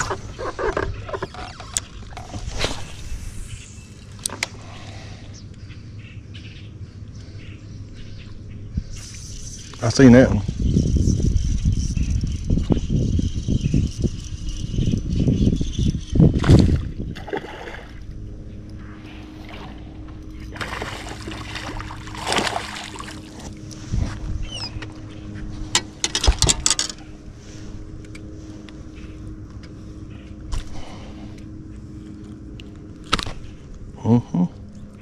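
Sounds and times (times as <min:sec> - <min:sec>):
rumbling handling noise: 0:00.0 - 0:05.9, 0:09.7 - 0:35.0
steady low hum: 0:00.0 - 0:35.0
water splashing: 0:20.5 - 0:23.6.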